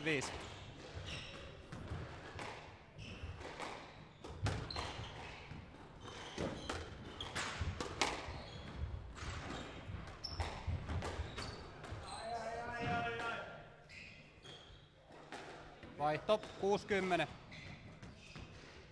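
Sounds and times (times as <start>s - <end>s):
squash ball knocks: 6.1s - 8.3s.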